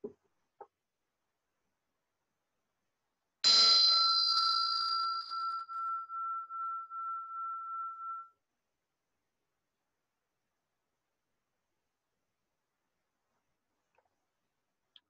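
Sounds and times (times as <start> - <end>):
meditation bell ringing: 3.4 - 8.4.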